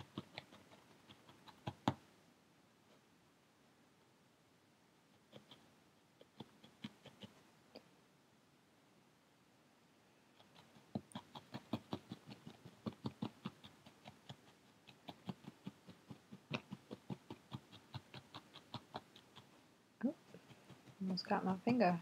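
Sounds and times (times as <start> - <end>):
felting needle tapping into foam: 0.0 - 2.0, 10.4 - 21.6.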